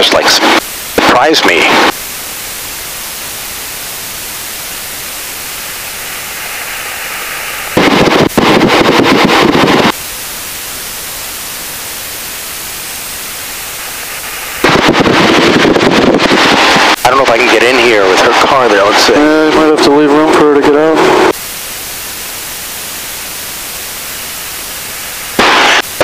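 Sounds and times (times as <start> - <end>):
headset intercom hiss: 0.0 - 26.0
loud rushing noise: 6.1 - 10.0, 13.7 - 21.4.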